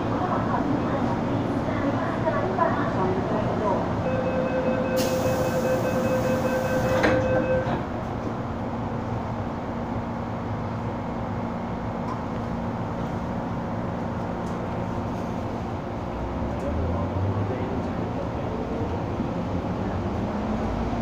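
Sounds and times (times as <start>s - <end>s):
train car hum and rumble: 0.0s - 21.0s
rapid warning beeps: 4.1s - 7.7s
train doors thudding shut: 5.0s - 8.0s.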